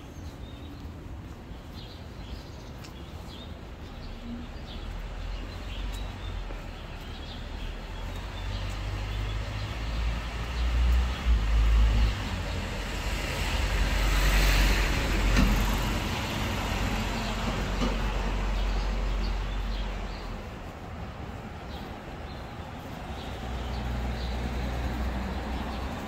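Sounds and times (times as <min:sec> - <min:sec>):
vehicle passing close by: 0:08.2 - 0:20.3.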